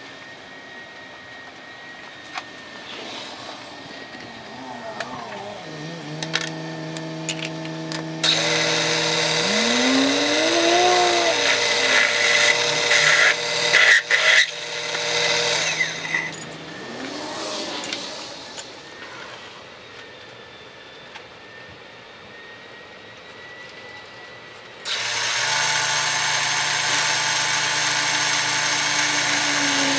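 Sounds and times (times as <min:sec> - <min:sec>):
milling machine hum: 0:00.0 - 0:19.4, 0:24.9 - 0:29.9
metal cutting screech: 0:08.2 - 0:19.6.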